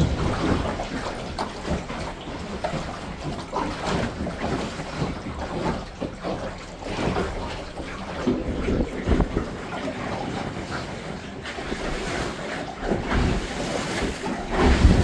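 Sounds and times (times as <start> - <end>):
water lapping against boat hull: 0.0 - 15.0
wind buffeting microphone: 7.1 - 12.1, 12.8 - 15.0.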